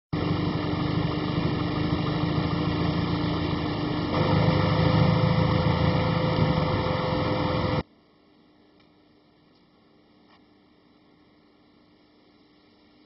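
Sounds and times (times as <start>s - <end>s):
car engine rumbling: 0.2s - 7.8s.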